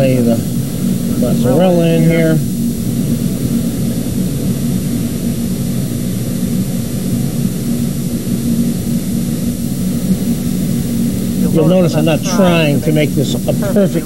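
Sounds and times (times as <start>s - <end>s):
people talking: 0.0s - 0.5s, 1.1s - 2.5s, 11.4s - 14.0s
steady low hum: 0.0s - 14.0s.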